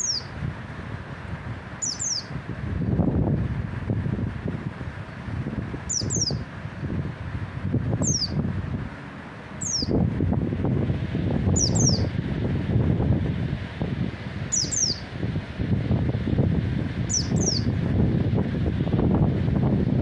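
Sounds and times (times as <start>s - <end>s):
bird chirping: 0.0s - 0.3s, 1.8s - 2.3s, 5.9s - 6.4s, 8.0s - 8.4s, 9.6s - 10.0s, 11.5s - 12.1s, 14.5s - 15.0s, 17.1s - 17.7s.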